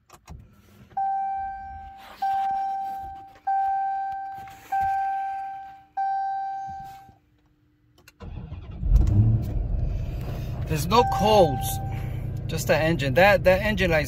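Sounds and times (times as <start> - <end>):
car warning chime: 1.0 - 7.1, 10.7 - 12.2
engine cranking rumble: 8.2 - 14.0.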